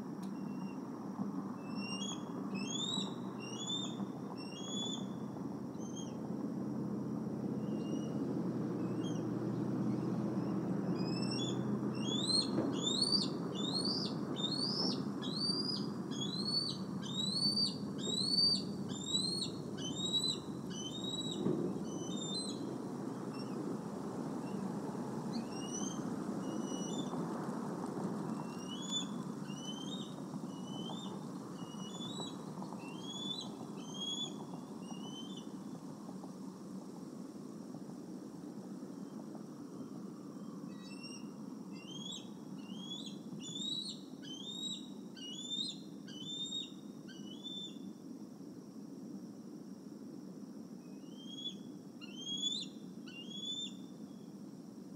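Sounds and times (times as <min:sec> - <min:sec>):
low ambient hiss: 0:00.0 - 0:54.9
eagles chirping: 0:01.8 - 0:05.2, 0:11.0 - 0:22.7, 0:28.4 - 0:35.6.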